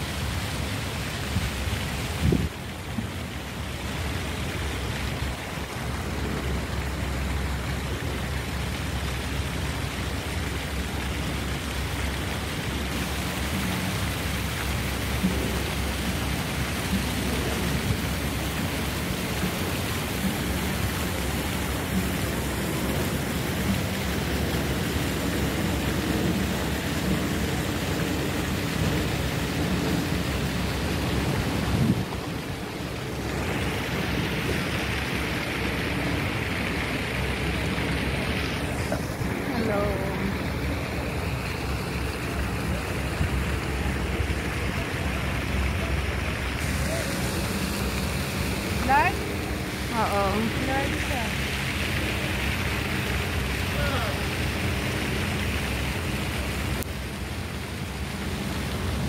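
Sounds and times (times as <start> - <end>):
wind buffeting microphone: 0.0 - 3.8, 16.6 - 51.3
choppy water against seawall: 0.0 - 59.0.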